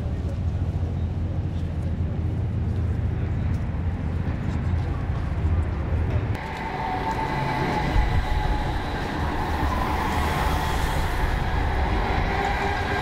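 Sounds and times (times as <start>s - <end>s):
faint tram whine: 0.0s - 13.0s
tram rumbling past: 0.0s - 13.0s
tram hiss: 6.4s - 13.0s.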